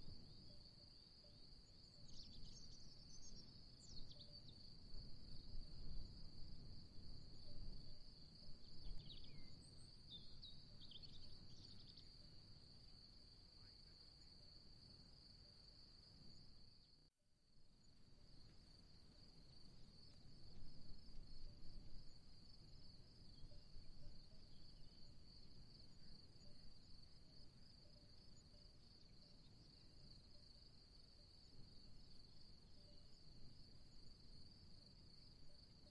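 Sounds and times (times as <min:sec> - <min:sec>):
faint low wind rumble: 0:00.0 - 0:16.7.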